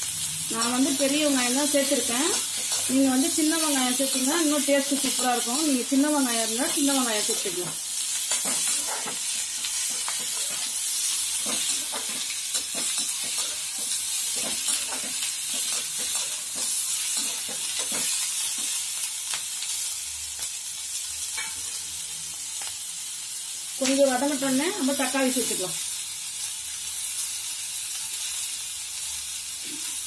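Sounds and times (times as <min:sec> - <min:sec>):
vegetables sizzling in hot oil: 0:00.0 - 0:30.0
spatula scraping a pan: 0:08.2 - 0:18.7.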